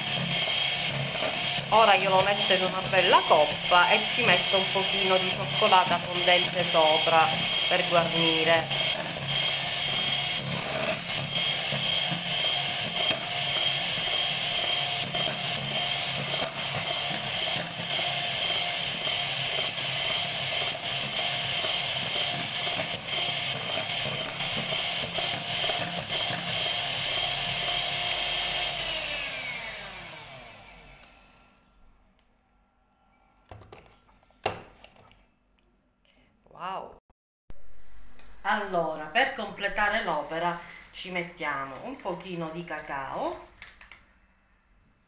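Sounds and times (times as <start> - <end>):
mixer beaters clicking: 0.0 - 29.3
electric hand mixer whining: 0.0 - 31.6.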